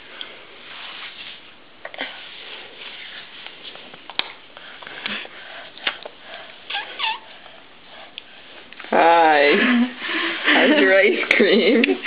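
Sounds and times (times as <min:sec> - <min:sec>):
toddler high-pitched squeaks: 0:06.7 - 0:07.3.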